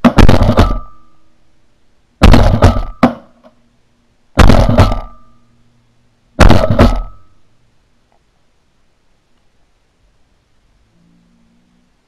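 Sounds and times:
shotgun blasts: 0.0 - 1.1, 2.2 - 3.3, 4.4 - 5.3, 6.4 - 7.3.

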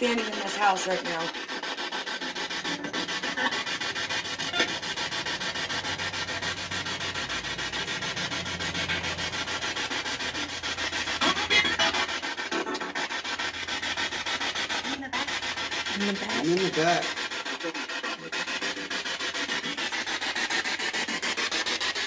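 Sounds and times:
chopped radio static: 11.1 - 13.1.

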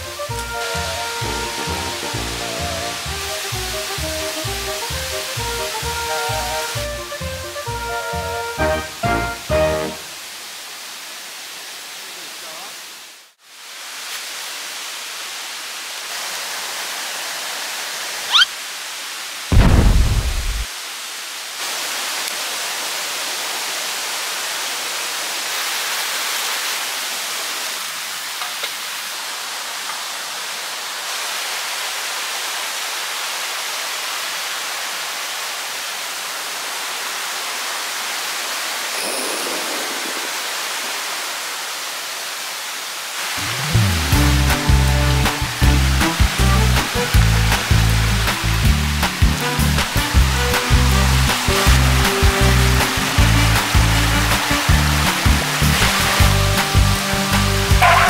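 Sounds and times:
stream rushing: 0.0 - 58.0
loud low rumble: 19.5 - 20.7.

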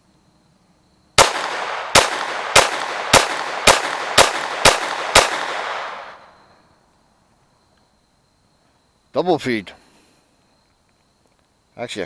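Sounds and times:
pistol shots with echo: 1.2 - 6.4.

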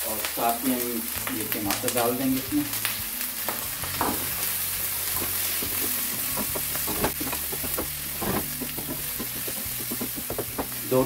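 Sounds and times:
tomatoes sizzling in hot oil: 0.0 - 11.0
wooden spoon scraping a pan: 3.9 - 11.0
spoon knocking against pan: 5.2 - 10.8.

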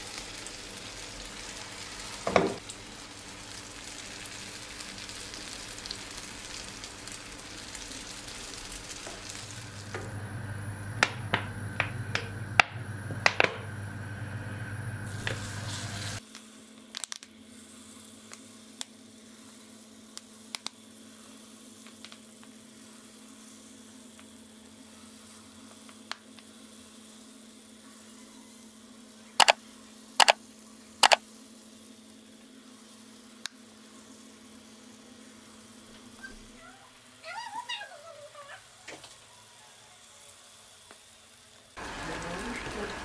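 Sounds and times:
oil sizzling in a pan: 0.0 - 43.0
low hum: 9.3 - 16.2.

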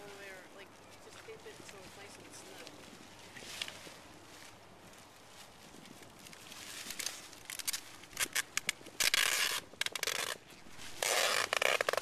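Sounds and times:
tape ripping off roll: 6.7 - 12.0.

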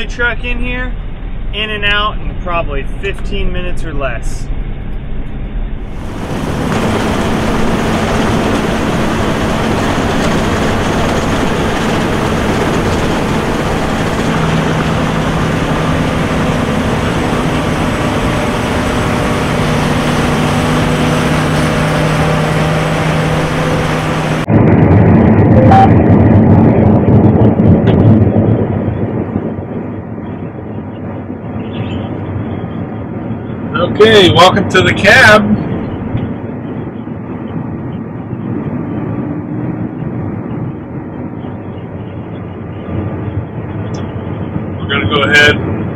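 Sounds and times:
diesel engine running: 0.0 - 45.9
muffled engine rumble: 0.0 - 45.9.

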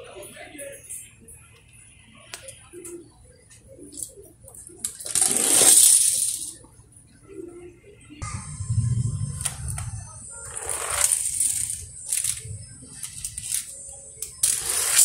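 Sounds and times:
toy cars rolling on concrete: 3.9 - 6.7, 9.4 - 15.0
toy cars clinking: 4.0 - 6.7, 9.7 - 15.0
deep rumble: 8.2 - 11.2.

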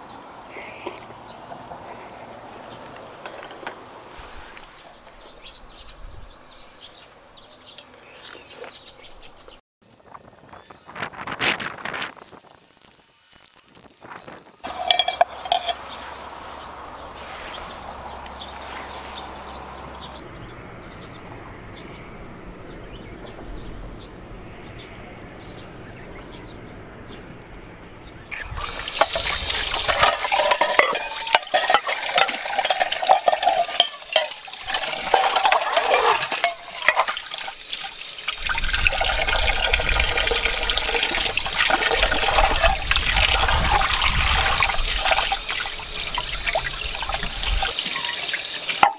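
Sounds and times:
pots scrubbed and splashing: 10.4 - 17.9, 28.3 - 48.9
metal pots clinking: 14.6 - 15.9, 28.3 - 46.6, 47.2 - 48.9.

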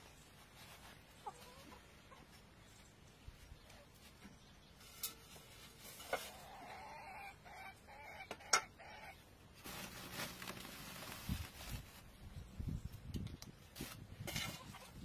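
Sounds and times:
chicken clucking: 1.1 - 2.9, 6.0 - 9.2
sack rustling: 9.6 - 12.1.

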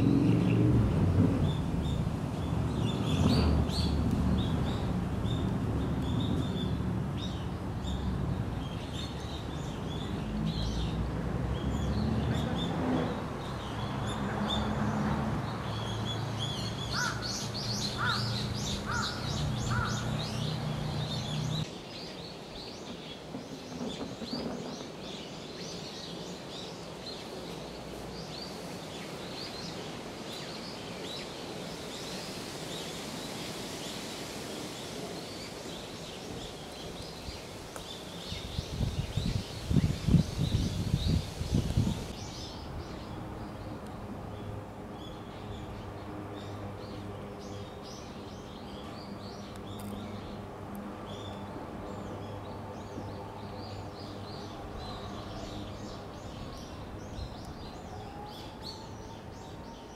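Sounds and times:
small birds chirping: 1.4 - 59.9
loud bird calls: 16.4 - 22.2.

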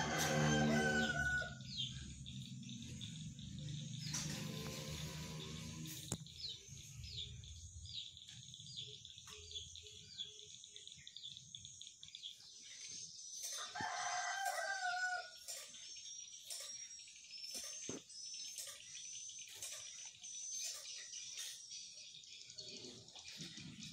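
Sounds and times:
rooster crowing: 0.0 - 1.8, 13.6 - 15.4
small bird chirping: 0.0 - 23.9.

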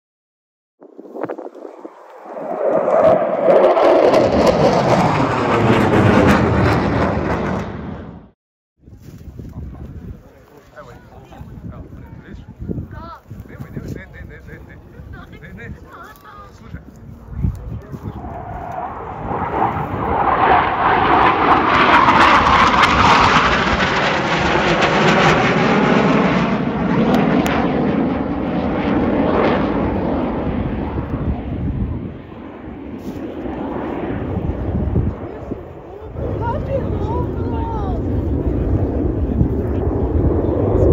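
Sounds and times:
fighter jets roaring overhead: 1.1 - 8.3, 17.1 - 40.9.

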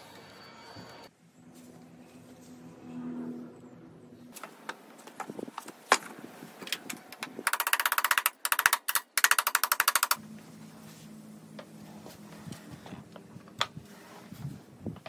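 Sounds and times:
fast mechanical clicking: 6.7 - 10.2
steady low hum: 10.2 - 15.0.

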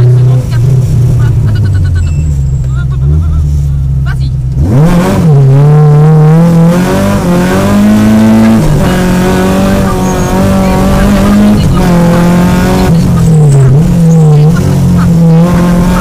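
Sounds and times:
car engine revving: 0.0 - 16.0.

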